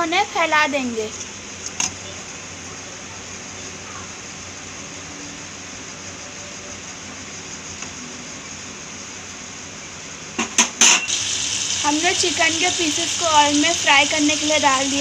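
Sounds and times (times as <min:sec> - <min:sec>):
steady background hiss: 0:00.0 - 0:15.0
sharp knocks: 0:10.4 - 0:11.1.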